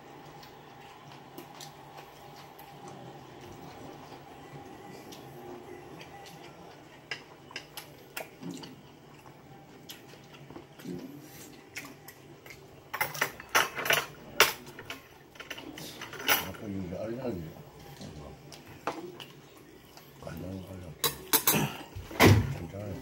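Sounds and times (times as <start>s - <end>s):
dishes and cutlery clinking: 6.8s - 8.7s, 12.1s - 16.8s, 21.0s - 22.6s.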